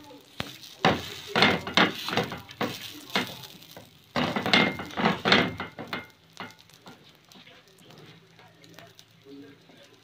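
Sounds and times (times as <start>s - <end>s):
frying pan scraping on metal grate: 0.5s - 6.7s.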